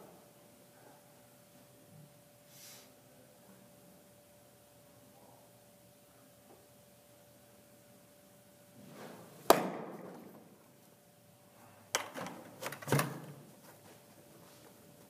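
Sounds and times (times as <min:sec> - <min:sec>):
baseball popping into mitt: 0:09.4 - 0:10.3.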